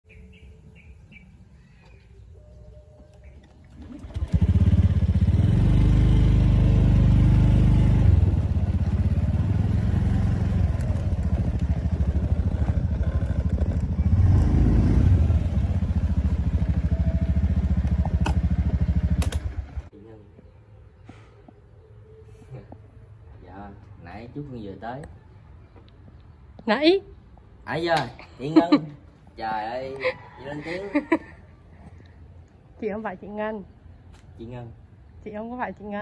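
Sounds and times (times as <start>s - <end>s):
motorbike engine riding: 3.2s - 19.9s.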